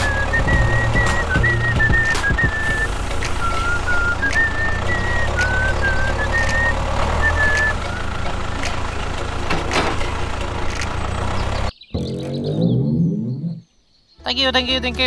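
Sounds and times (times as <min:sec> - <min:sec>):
music with whistled tune: 0:00.0 - 0:08.8
low engine-like rumble: 0:00.0 - 0:11.8.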